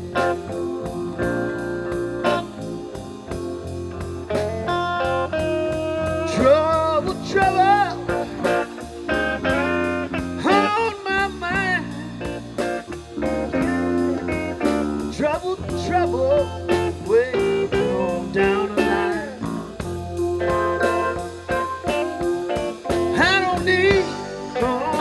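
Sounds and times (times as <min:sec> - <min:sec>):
bending lead guitar lines: 0:00.0 - 0:25.0
drums: 0:00.0 - 0:25.0
electric bass: 0:00.0 - 0:25.0
keyboard: 0:00.0 - 0:25.0.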